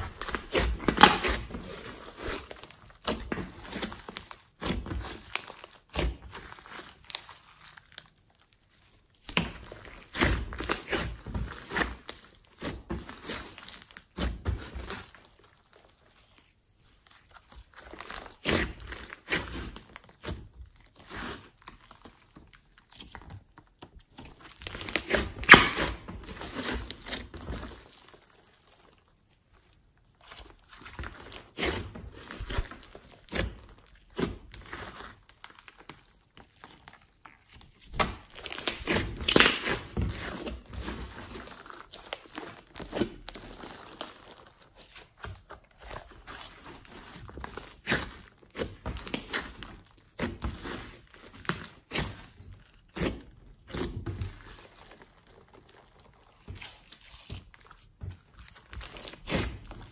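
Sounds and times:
sticky slime squishing: 0:00.0 - 0:59.9.

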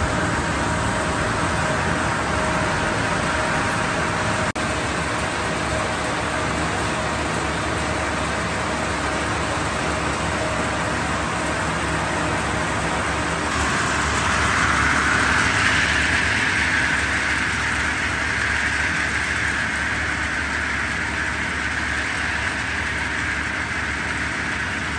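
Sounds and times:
machinery motor hum: 0:00.0 - 0:24.9
rushing hissing noise: 0:13.4 - 0:24.9.

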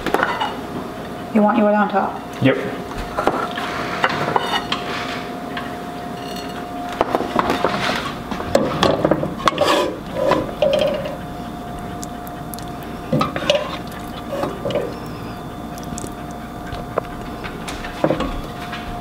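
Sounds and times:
faint steady hum: 0:00.0 - 0:19.0
spoon scraping and clinking plates: 0:03.1 - 0:05.2, 0:06.1 - 0:08.2, 0:08.8 - 0:11.2.

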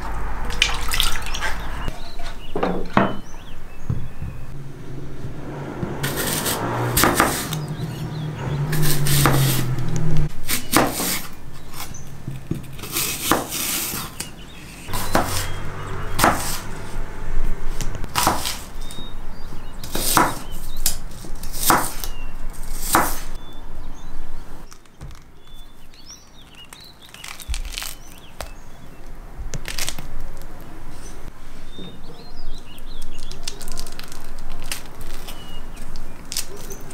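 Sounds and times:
knife slicing apples: 0:06.0 - 0:08.1, 0:08.7 - 0:12.0, 0:12.6 - 0:17.0, 0:17.8 - 0:19.0, 0:19.9 - 0:23.3.

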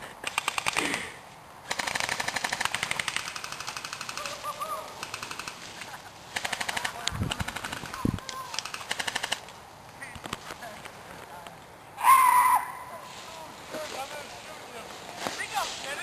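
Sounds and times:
airsoft rifles full-auto fire: 0:00.2 - 0:01.1, 0:01.7 - 0:09.5.

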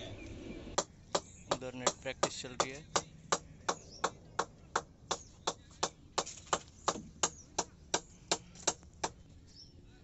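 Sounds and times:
sharp knocks: 0:00.8 - 0:09.2.

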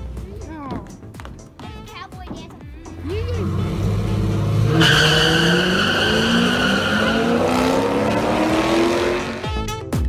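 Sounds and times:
car engines accelerating hard: 0:02.9 - 0:09.6.

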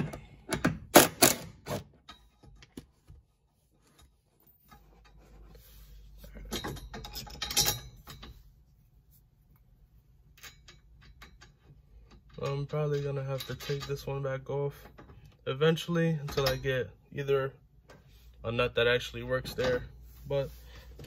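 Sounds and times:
rubbing and clattering handling: 0:01.6 - 0:09.6.

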